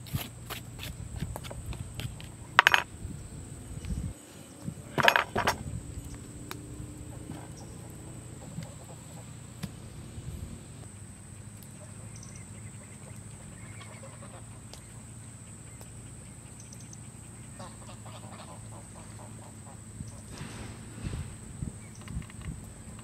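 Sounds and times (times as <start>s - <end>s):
ducks quacking: 6.9s - 20.7s.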